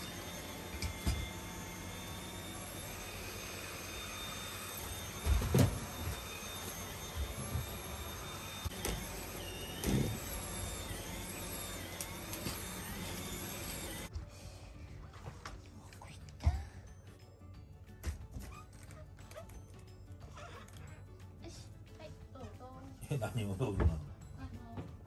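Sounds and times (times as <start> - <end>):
vacuum cleaner running: 0.0 - 14.3.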